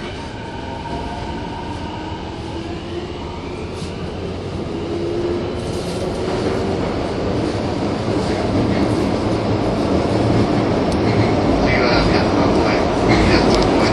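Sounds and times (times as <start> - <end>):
train running rumble: 4.0 - 13.9.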